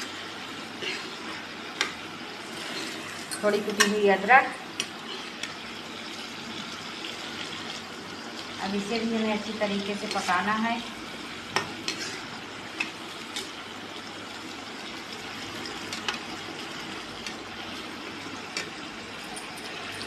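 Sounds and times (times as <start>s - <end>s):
masala sizzling in oil: 0.0s - 20.0s
metal spoon scraping pan: 11.6s - 12.3s.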